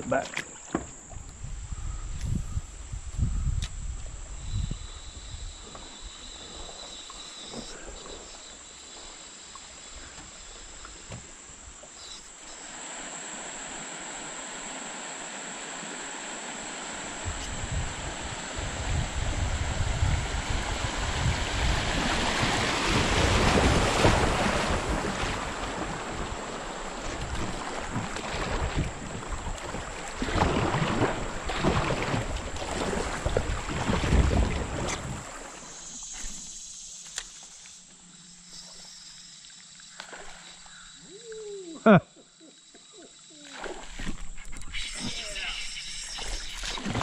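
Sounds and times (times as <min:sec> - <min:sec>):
wind rumbling on microphone: 0:00.9 - 0:06.8, 0:17.1 - 0:35.4
creek water rushing over gravel: 0:12.5 - 0:35.8.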